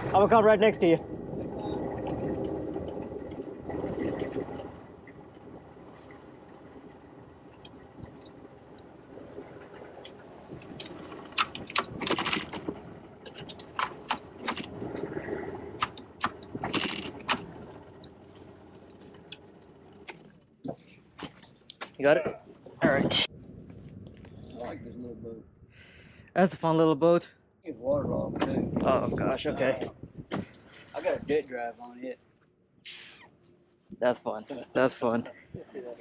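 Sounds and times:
boat motor running: 0:00.0 - 0:21.8
sharp knocks and scrapes: 0:30.3 - 0:31.2.

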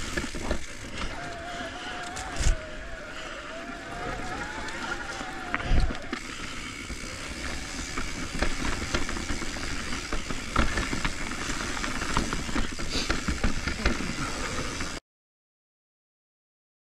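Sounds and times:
bike knocks and rattles: 0:00.0 - 0:01.2, 0:04.2 - 0:15.0
bike tyre and wind noise: 0:00.0 - 0:15.0.

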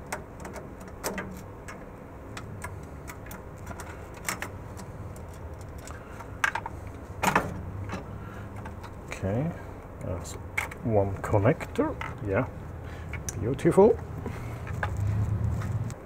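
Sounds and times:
light clicks and metal clatter: 0:00.0 - 0:09.3, 0:10.0 - 0:16.0
steady low hum: 0:00.0 - 0:16.0.

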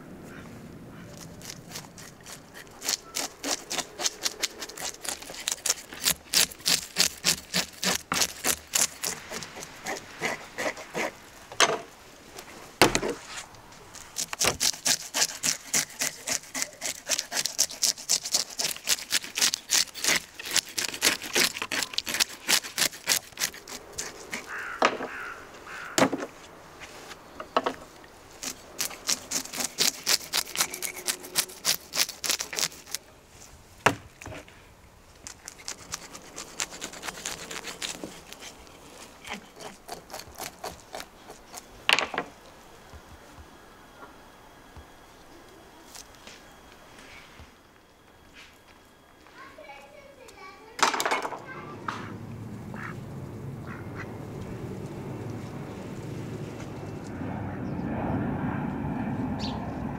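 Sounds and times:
knife scraping fish scales: 0:01.2 - 0:11.2, 0:14.0 - 0:24.7, 0:28.4 - 0:33.0, 0:35.4 - 0:41.7.

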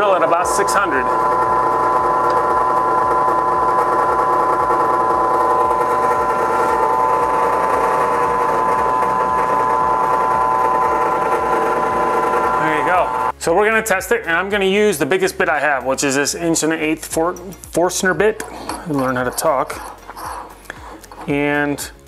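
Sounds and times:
drill press motor whine: 0:00.0 - 0:13.4, 0:18.3 - 0:21.4.

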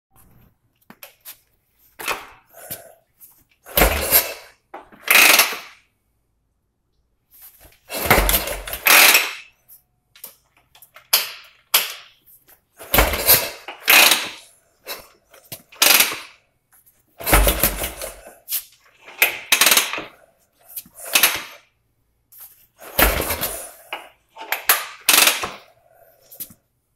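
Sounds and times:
motorcycle engine turning over: 0:05.0 - 0:05.8, 0:07.9 - 0:09.4, 0:12.9 - 0:14.4, 0:17.2 - 0:18.2.

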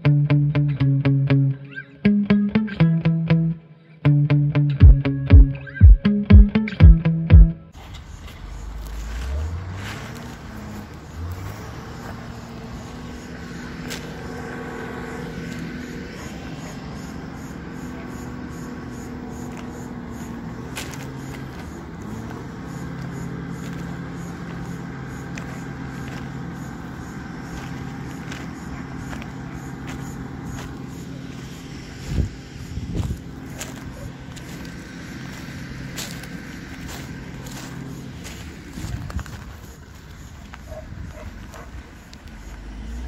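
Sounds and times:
heavy machinery engine running: 0:00.0 - 0:43.0.

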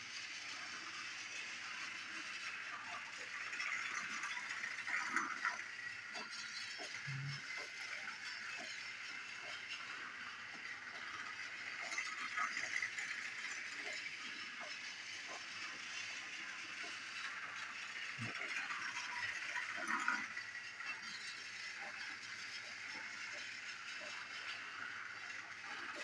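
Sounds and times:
small clicks and rattles: 0:00.0 - 0:26.0
toy train whirring: 0:00.0 - 0:26.0.

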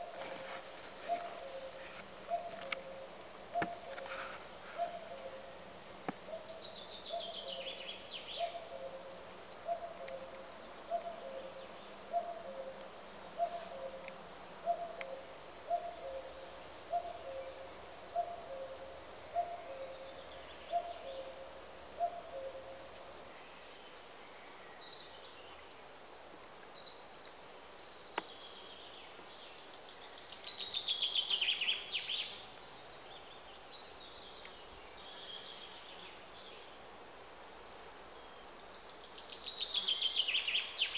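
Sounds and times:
songbird phrases: 0:00.0 - 0:36.9, 0:38.0 - 0:40.9.

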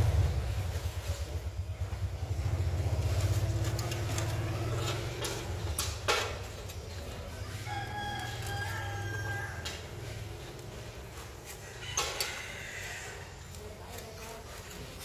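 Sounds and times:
rooster crowing: 0:07.3 - 0:13.6.

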